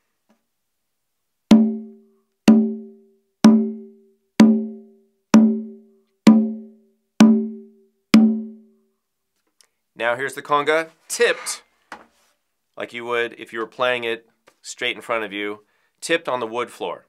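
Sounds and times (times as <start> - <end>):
conga drum struck by hand: 1.5 - 4.8, 5.4 - 8.6.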